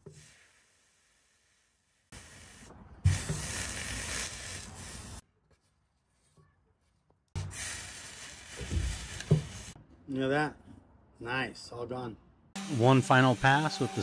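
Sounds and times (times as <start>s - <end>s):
steam iron hissing: 7.4s - 9.8s.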